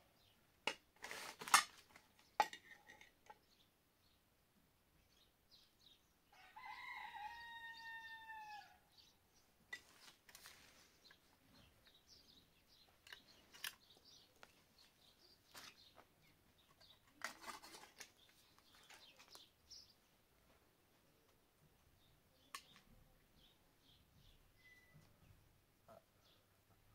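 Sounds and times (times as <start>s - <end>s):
rooster crowing: 6.3s - 8.9s.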